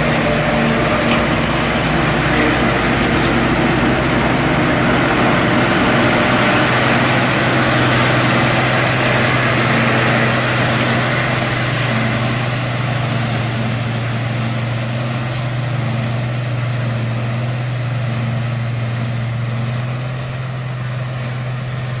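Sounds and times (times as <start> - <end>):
forage chopper running: 0.0 - 22.0.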